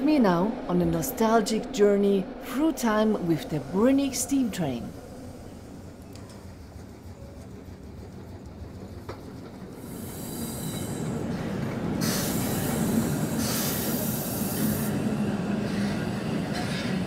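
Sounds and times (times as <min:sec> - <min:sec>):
steam train rumbling: 0:00.0 - 0:17.0
steam hissing: 0:09.7 - 0:16.0.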